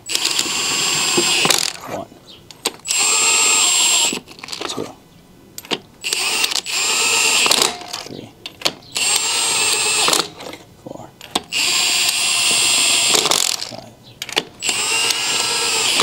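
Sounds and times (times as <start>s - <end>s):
impact wrench running: 0.0s - 1.8s, 2.8s - 4.6s, 5.6s - 8.1s, 8.9s - 10.4s, 11.4s - 13.8s, 14.4s - 16.0s.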